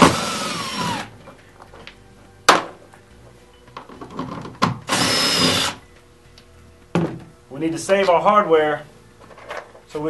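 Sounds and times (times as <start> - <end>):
cordless drill whirring: 0.0 - 1.1, 4.9 - 5.8.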